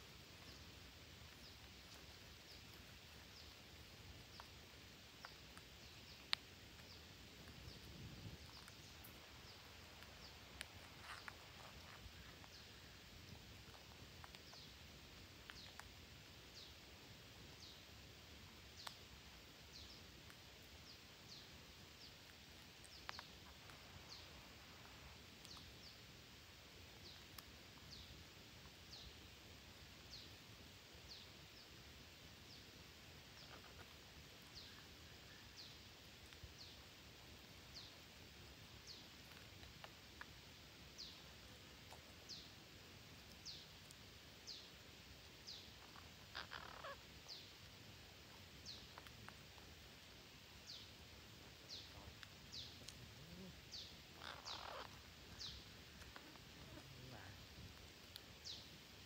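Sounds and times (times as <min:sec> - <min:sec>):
parakeet squawk: 0:45.8 - 0:47.0, 0:54.2 - 0:55.0.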